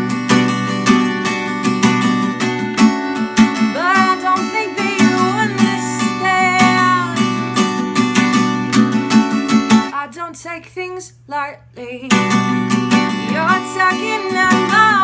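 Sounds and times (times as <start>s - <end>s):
acoustic guitar strumming: 0.0s - 10.0s, 12.1s - 15.0s
woman singing: 3.6s - 7.6s, 9.9s - 12.4s, 13.1s - 15.0s.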